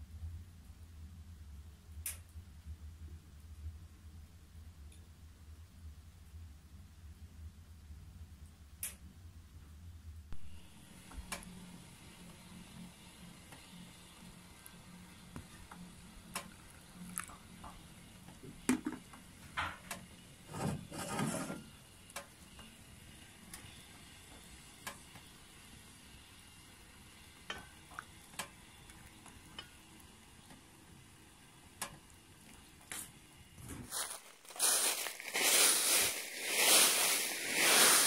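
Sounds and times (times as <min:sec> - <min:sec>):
tea trickling into a cup: 0:16.6 - 0:17.5.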